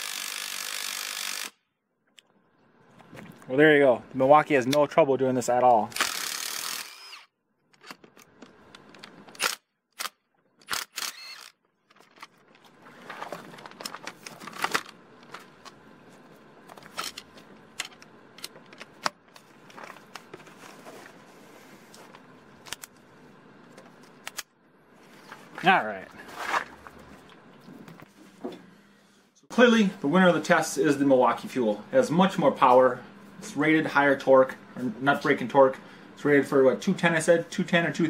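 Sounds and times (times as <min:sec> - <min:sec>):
tool handling clicks and knocks: 0:11.8 - 0:15.8, 0:16.6 - 0:20.5.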